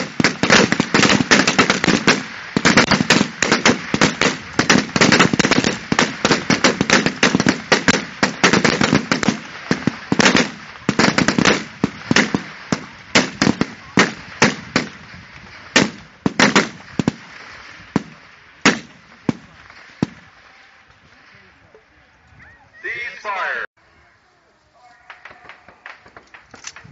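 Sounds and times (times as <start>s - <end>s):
rifles firing: 0.0s - 14.9s.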